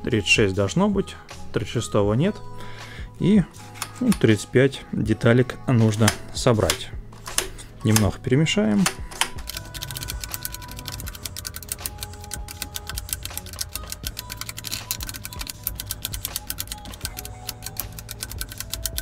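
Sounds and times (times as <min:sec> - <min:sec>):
plastic puzzle tiles clicking: 0:09.2 - 0:19.0.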